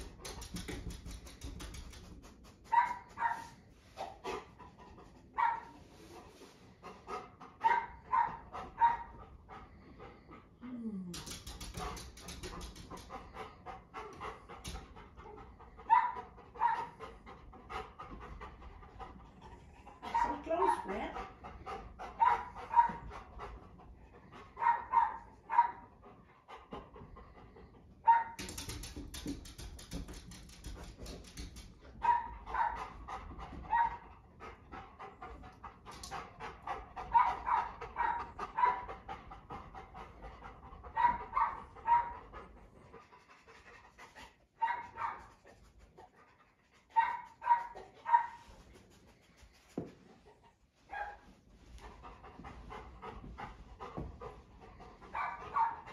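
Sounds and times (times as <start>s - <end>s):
dog panting: 0.0s - 55.9s
rustling noise: 5.4s - 6.8s, 47.0s - 55.8s.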